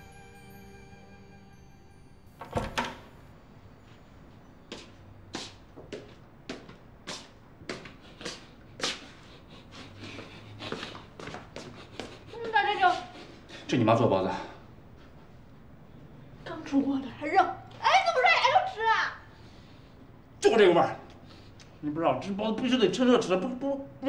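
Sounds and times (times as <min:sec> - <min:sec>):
slippered footsteps on wooden floor: 0:03.9 - 0:09.2, 0:10.0 - 0:13.1.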